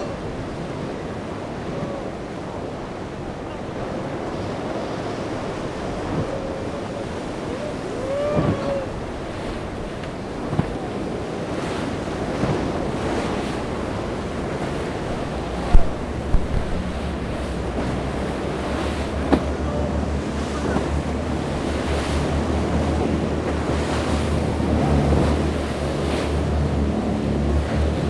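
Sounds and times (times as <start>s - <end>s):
ocean surf breaking: 0.0s - 28.0s
wind buffeting microphone: 0.0s - 28.0s.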